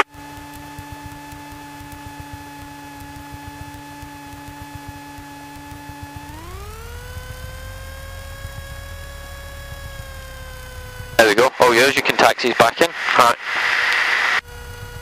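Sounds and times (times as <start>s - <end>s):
engine whining tone: 0.0s - 12.0s, 14.0s - 15.0s
aircraft engine rumble: 5.6s - 15.0s.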